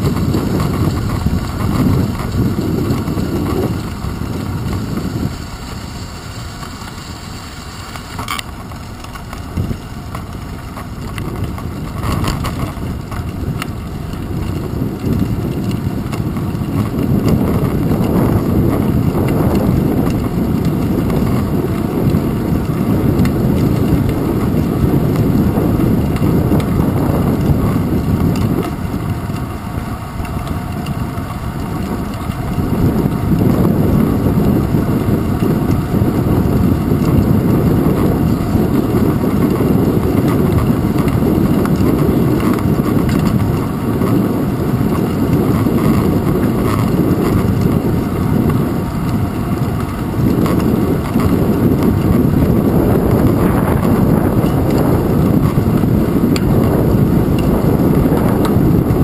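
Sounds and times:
bicycle tyres rumbling on asphalt: 0.0s - 59.0s
wind buffeting microphone: 0.0s - 59.0s.

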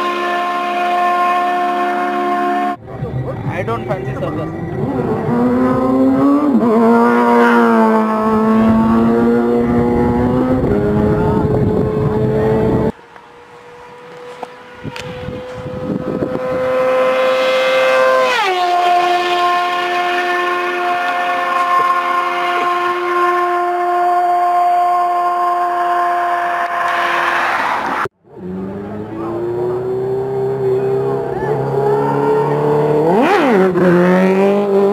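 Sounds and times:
motorcycle engine at full throttle: 0.0s - 26.5s, 28.3s - 34.9s
motorcycle passing at high speed: 0.0s - 34.9s.

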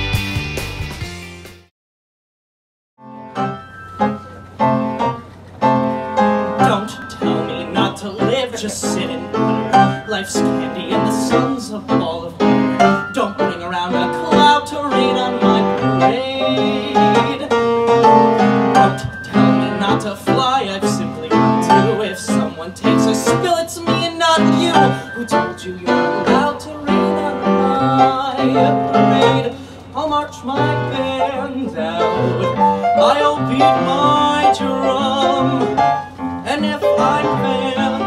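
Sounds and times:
musical accompaniment with chords: 0.0s - 1.7s, 3.0s - 8.4s, 12.4s - 29.6s
man singing into a microphone: 6.6s - 38.0s.

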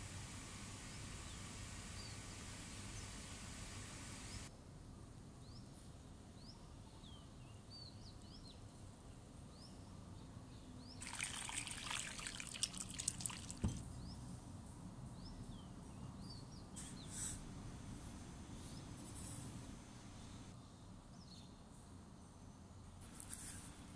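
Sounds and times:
water trickling through strainer: 11.0s - 13.8s
knock: 13.6s - 13.8s.

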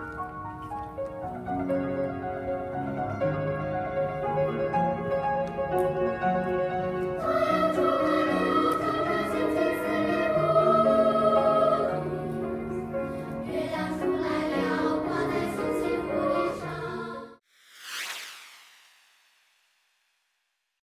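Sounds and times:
children's choir singing: 7.2s - 17.4s.

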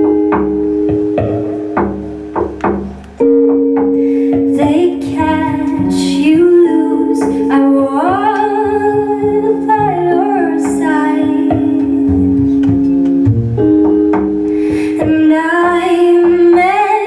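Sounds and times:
double bass: 0.0s - 16.7s
electric guitar: 0.0s - 17.0s
woman singing: 4.2s - 12.6s, 14.6s - 17.0s.

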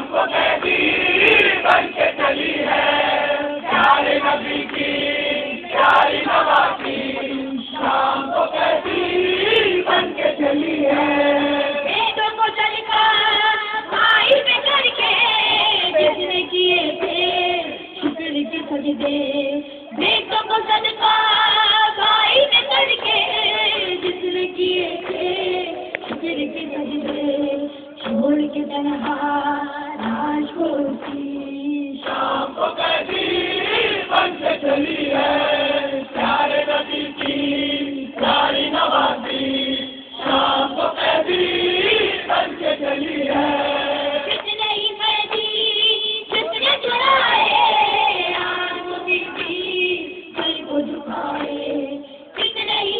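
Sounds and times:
voices singing a lament in chorus: 0.0s - 52.9s.

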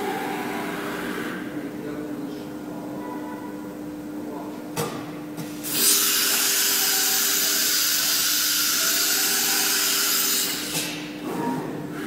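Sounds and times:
compressed air hissing: 5.6s - 11.0s.

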